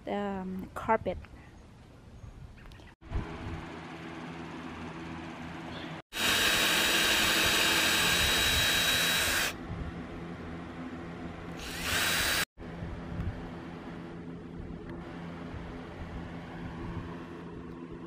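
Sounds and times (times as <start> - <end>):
cordless drill boring into wood: 6.1 - 9.5, 11.6 - 12.5.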